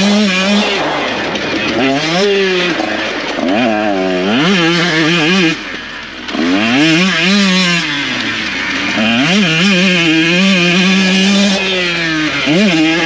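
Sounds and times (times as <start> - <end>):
two-stroke engine revving: 0.0 - 13.0.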